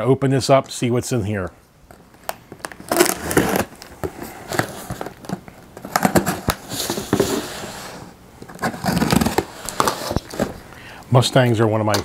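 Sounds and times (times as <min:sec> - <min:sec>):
knife cutting packing tape: 0:02.6 - 0:03.8, 0:05.8 - 0:07.2, 0:08.6 - 0:10.4.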